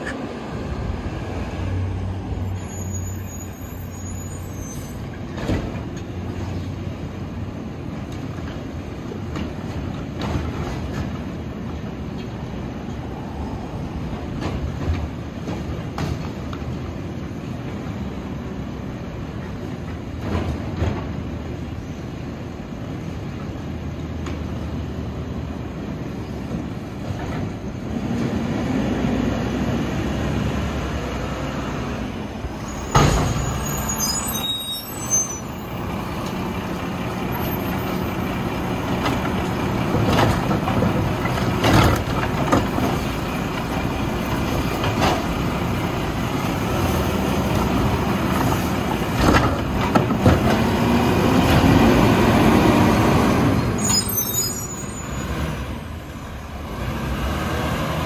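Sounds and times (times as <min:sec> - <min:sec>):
garbage truck engine and hydraulics: 0:00.0 - 0:58.0
short high squeals: 0:02.4 - 0:05.0, 0:32.6 - 0:35.7, 0:53.8 - 0:55.5.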